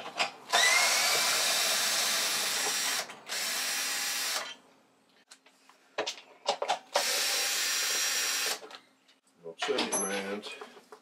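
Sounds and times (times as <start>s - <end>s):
cordless drill spinning: 0.5s - 4.6s, 6.9s - 8.6s.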